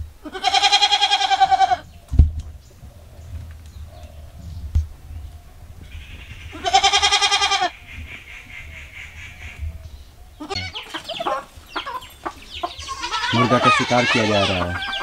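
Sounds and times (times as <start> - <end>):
goat bleating: 0.2 - 1.9, 6.5 - 7.7, 10.4 - 15.0.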